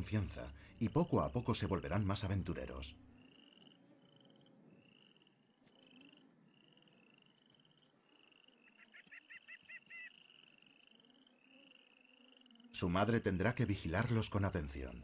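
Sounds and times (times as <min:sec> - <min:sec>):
short high animal calls: 0:03.2 - 0:12.7.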